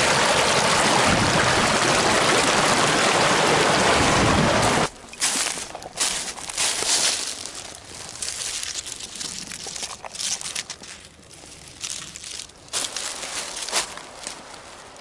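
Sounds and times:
dry bark and leaves crunching: 5.2s - 15.0s.

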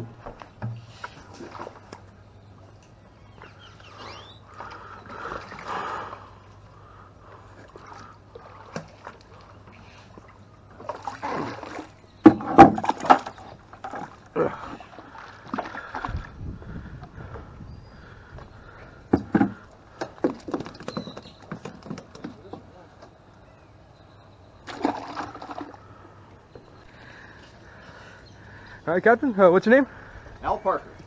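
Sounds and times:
bucket splashing and gurgling in water: 1.2s - 2.0s, 10.7s - 16.4s, 24.6s - 25.9s
bucket knocking on wooden dock: 12.2s - 13.3s.

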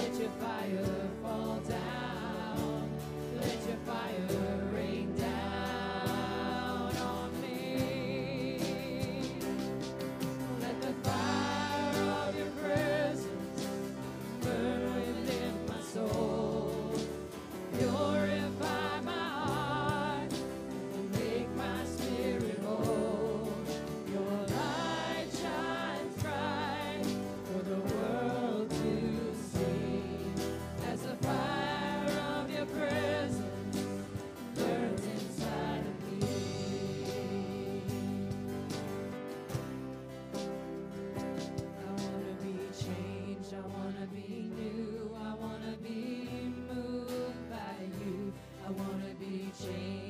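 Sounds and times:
voices singing with vibrato: 0.0s - 38.9s
guitars bass and drums: 0.0s - 50.0s.

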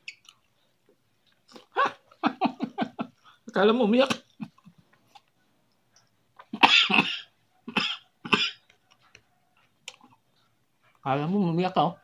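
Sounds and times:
faint chewing clicks: 0.0s - 2.2s, 7.6s - 11.0s
man coughing: 6.6s - 8.6s.

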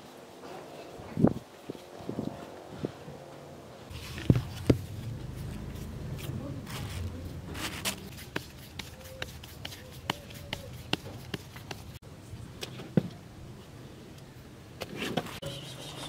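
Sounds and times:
dough patted on metal tray: 8.3s - 11.9s.

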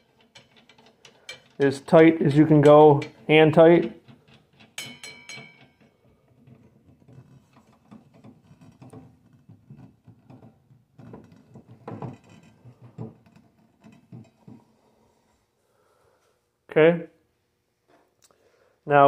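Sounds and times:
metal clicks and rubbing: 0.0s - 14.8s.

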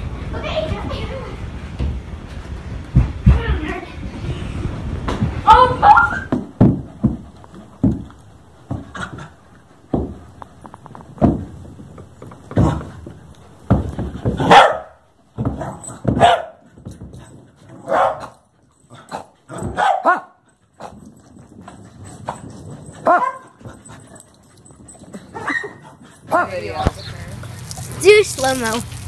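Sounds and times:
dogs barking: 14.2s - 16.6s, 17.8s - 18.4s, 19.1s - 20.9s, 23.0s - 23.6s, 25.2s - 27.9s.

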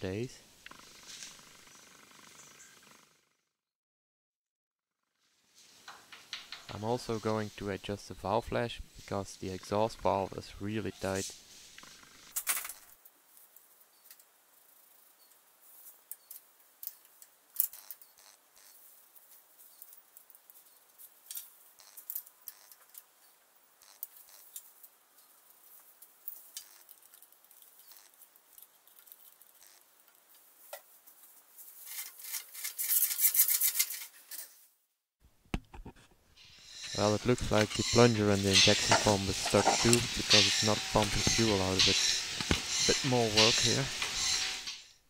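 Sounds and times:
scraping rattling noise: 36.7s - 44.8s.

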